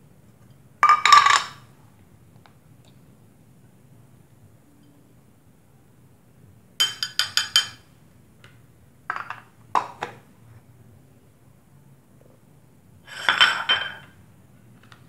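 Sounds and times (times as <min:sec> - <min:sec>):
dishes and utensils clinking: 0:06.8 - 0:07.8, 0:13.1 - 0:14.2.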